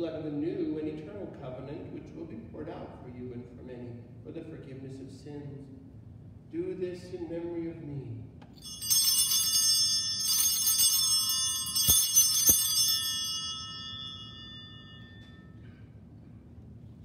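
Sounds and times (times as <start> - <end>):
altar bells ringing: 8.6 - 15.9.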